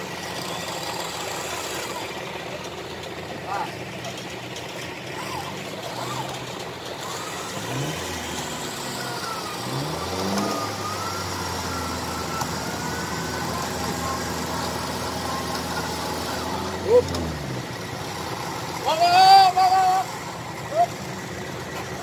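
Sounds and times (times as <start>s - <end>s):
vehicle engine revving: 0.0s - 22.0s.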